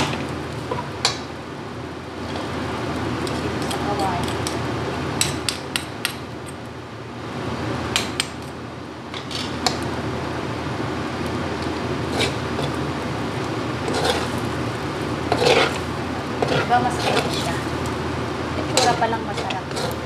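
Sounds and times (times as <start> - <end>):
low background hum: 0.0 - 20.0
metal spatula scraping a wok: 9.2 - 9.7, 12.1 - 12.8, 13.8 - 14.5, 15.3 - 17.7, 18.6 - 20.0.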